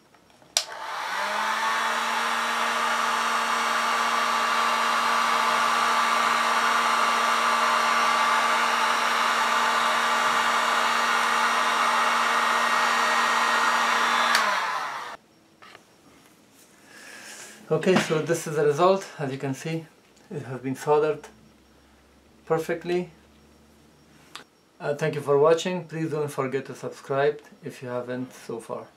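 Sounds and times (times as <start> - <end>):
heat gun fan blowing: 0.5 - 15.2
heat gun switch click: 0.6 - 1.0, 14.3 - 14.6.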